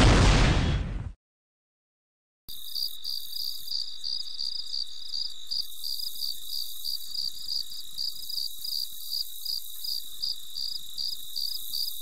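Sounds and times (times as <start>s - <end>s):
crickets chirping: 2.5s - 12.0s.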